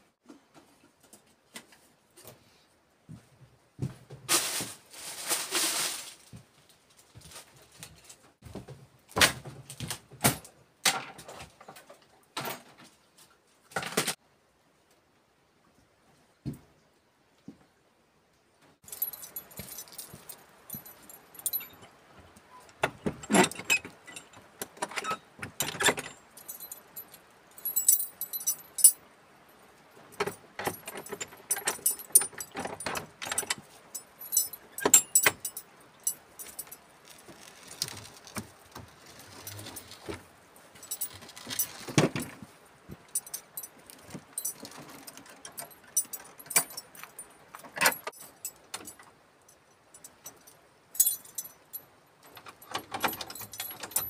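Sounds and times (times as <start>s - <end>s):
metal door latch clinking: 22.7s - 29.0s, 30.2s - 36.8s, 43.2s - 49.0s, 52.3s - 54.0s.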